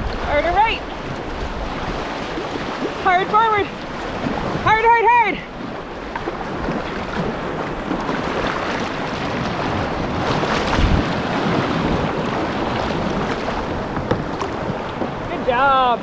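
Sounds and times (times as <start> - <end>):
rushing whitewater: 0.0 - 16.0
wind buffeting microphone: 0.0 - 16.0.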